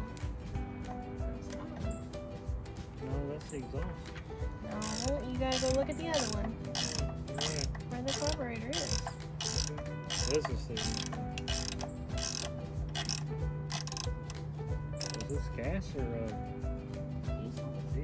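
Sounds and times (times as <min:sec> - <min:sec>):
ratchet wrench clicking: 0:04.7 - 0:14.4, 0:15.0 - 0:15.4.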